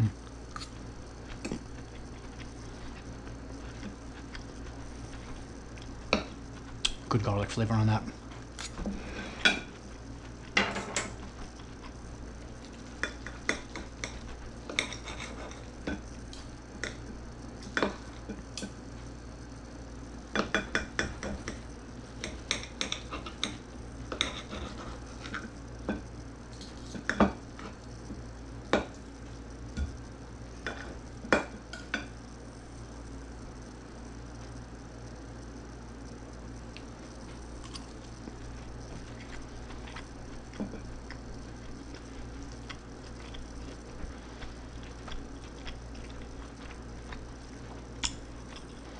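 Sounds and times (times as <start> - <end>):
cutlery clinking and scraping on plate: 13.0 - 16.0, 22.2 - 25.4.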